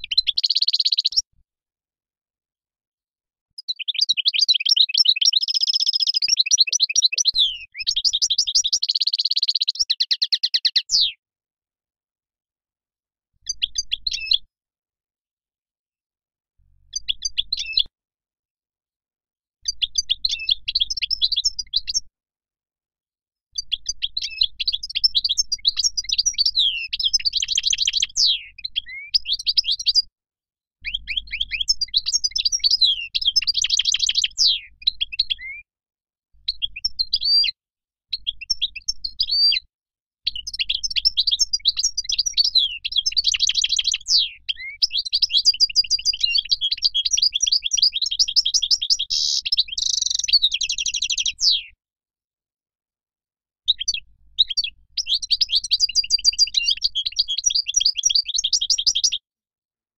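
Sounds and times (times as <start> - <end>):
finch twittering and trilling: 0.0 - 1.2, 3.6 - 11.1, 23.6 - 30.1, 30.8 - 35.6, 40.3 - 51.6, 53.7 - 59.2.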